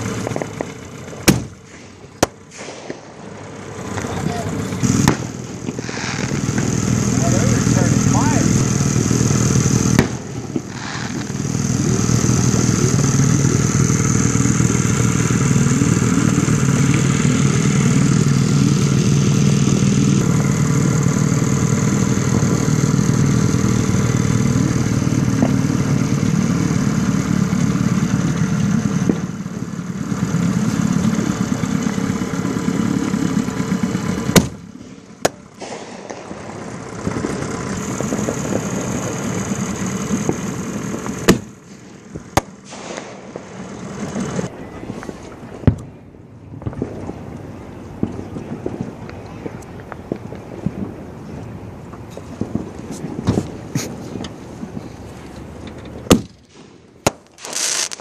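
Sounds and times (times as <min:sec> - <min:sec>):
outboard motor running: 0:00.0 - 0:02.5, 0:03.1 - 0:44.5
sharp bang: 0:01.2 - 0:03.4, 0:35.2 - 0:37.4, 0:42.4 - 0:43.6.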